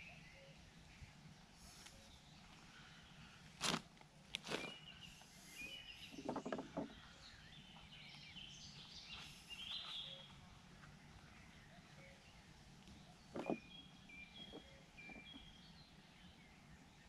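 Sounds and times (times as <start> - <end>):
birds chirping: 0.0 - 17.0
loud rustling handling noises: 3.5 - 4.9
soft knocks and rattles in bucket: 6.1 - 7.1, 13.3 - 13.7.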